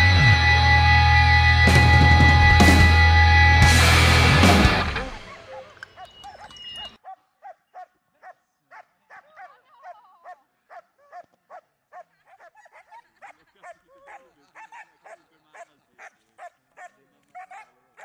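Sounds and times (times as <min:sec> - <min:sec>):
dog barking hard and fast: 0:05.2 - 0:18.0.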